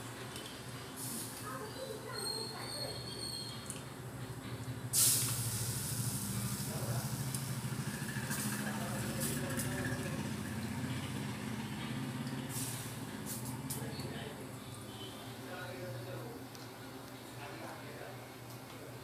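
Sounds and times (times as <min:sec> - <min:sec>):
water sizzling on hot griddle: 0:00.9 - 0:02.6, 0:04.9 - 0:13.9.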